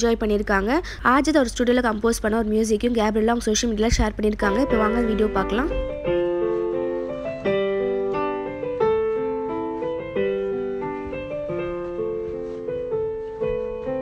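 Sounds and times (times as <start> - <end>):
electronic keyboard piano melody: 4.5 - 14.0.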